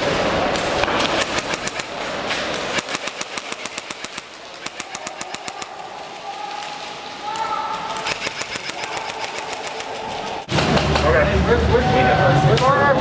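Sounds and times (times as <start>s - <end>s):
airsoft guns firing rapid snaps: 0.6s - 6.0s, 8.0s - 10.5s.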